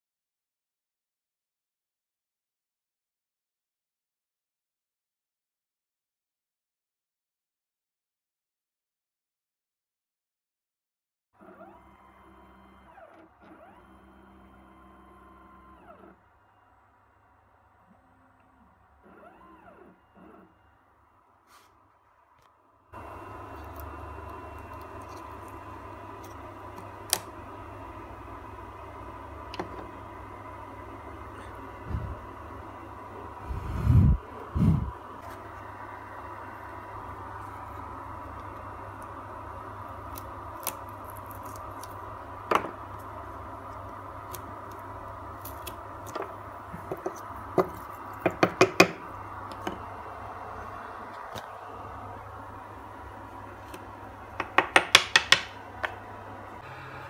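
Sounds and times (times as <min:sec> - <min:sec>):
machine hum and hiss: 0:11.4 - 0:57.0.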